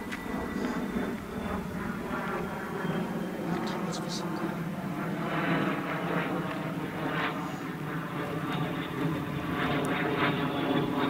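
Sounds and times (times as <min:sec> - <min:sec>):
level crossing warning bell: 0:00.0 - 0:04.0
steady drone: 0:00.0 - 0:11.0.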